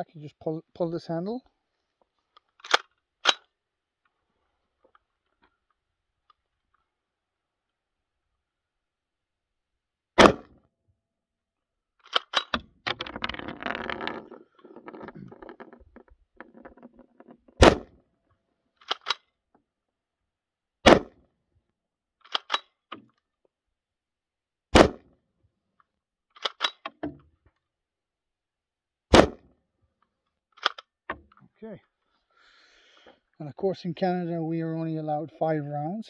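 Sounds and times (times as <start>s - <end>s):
rifle bolt metal clicks: 2.4s - 3.5s, 12.0s - 12.7s, 18.8s - 19.3s, 22.2s - 23.0s, 26.4s - 27.1s, 30.6s - 31.3s
rifle shots: 10.2s - 10.5s, 17.6s - 17.9s, 20.8s - 21.2s, 24.8s - 25.0s, 29.1s - 29.4s.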